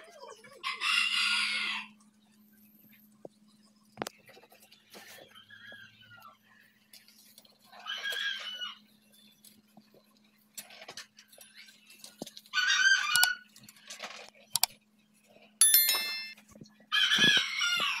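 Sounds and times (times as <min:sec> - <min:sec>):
bell-like chime: 0:15.6 - 0:16.4.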